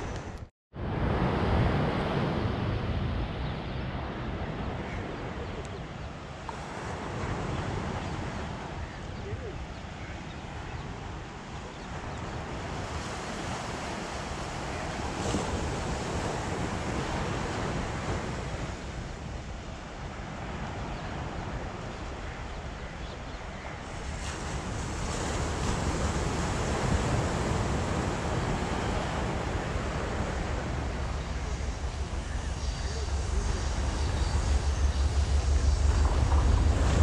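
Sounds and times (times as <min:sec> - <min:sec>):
wind rushing over microphone: 0:00.0 - 0:22.7, 0:23.8 - 0:37.0
sea surf washing onto beach: 0:00.0 - 0:37.0.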